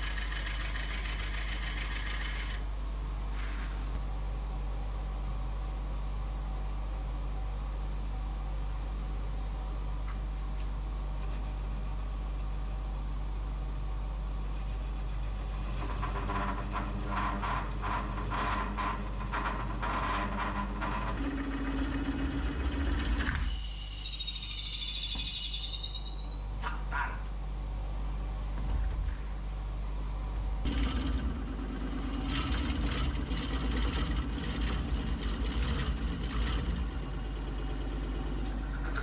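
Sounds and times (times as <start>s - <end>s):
wood lathe humming: 0.0s - 2.6s, 15.1s - 23.4s, 30.7s - 38.8s
high squeal: 15.4s - 26.7s.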